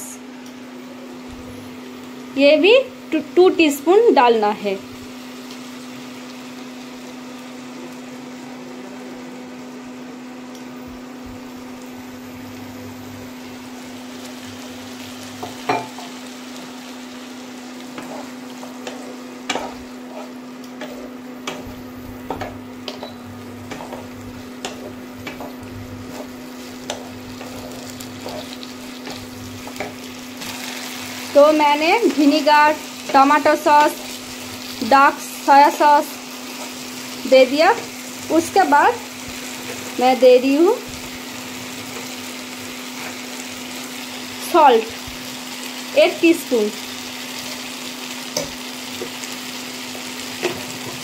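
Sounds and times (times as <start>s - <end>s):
vegetables sizzling in a wok: 0.0s - 51.0s
spatula scraping a pan: 17.9s - 30.1s.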